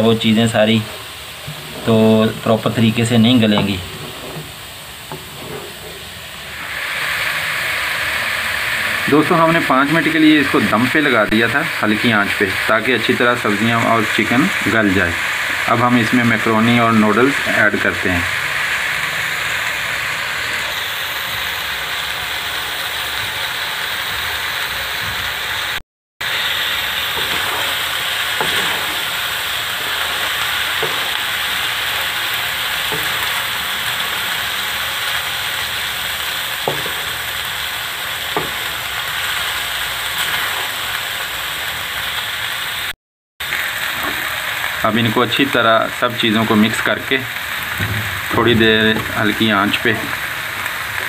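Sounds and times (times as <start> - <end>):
food sizzling in a wok: 0.0 - 51.0
wooden spatula scraping: 1.4 - 6.6, 26.6 - 35.9, 36.6 - 39.1, 40.2 - 41.0.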